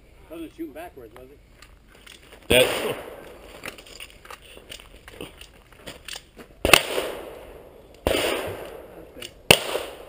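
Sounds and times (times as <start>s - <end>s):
distant gunshots with echo: 2.5s - 3.4s, 6.6s - 10.0s.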